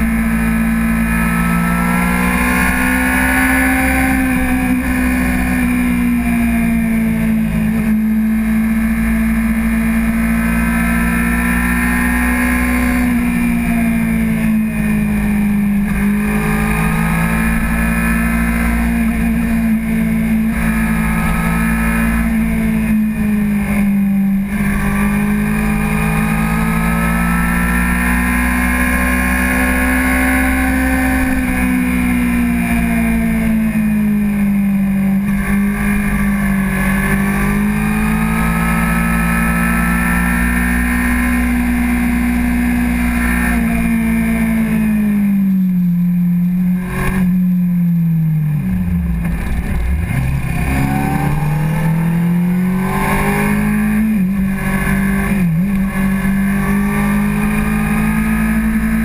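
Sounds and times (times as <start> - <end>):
motorcycle engine running: 0.0 - 59.0
wind rush: 48.4 - 53.5.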